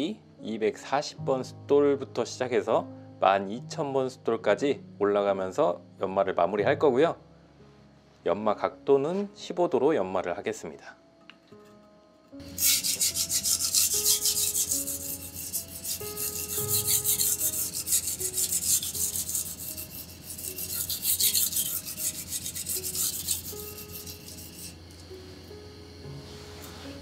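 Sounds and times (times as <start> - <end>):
soft piano music: 0.0 - 27.0
knife scraping on whetstone: 12.4 - 25.1.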